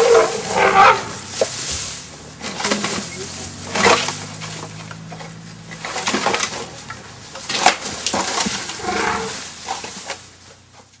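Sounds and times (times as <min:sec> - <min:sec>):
leaves rustling: 0:00.0 - 0:11.0
twigs and branches snapping: 0:03.7 - 0:08.8.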